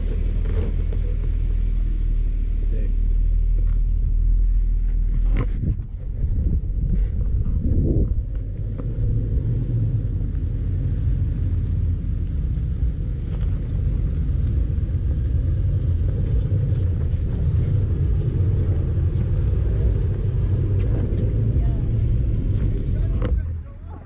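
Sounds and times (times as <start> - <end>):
engine low rumble: 0.0 - 24.0
tyres crackling on dirt: 0.0 - 24.0.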